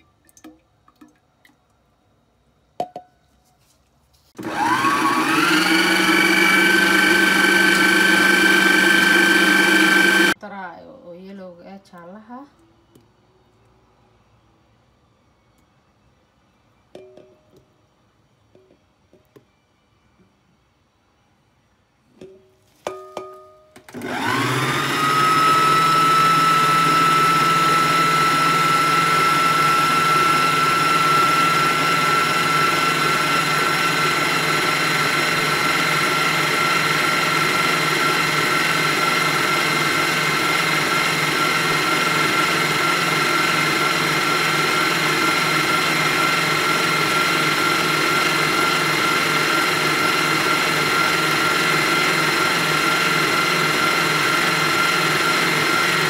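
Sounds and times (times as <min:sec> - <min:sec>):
stand mixer motor whine: 0:04.4 - 0:10.4, 0:23.9 - 0:56.0.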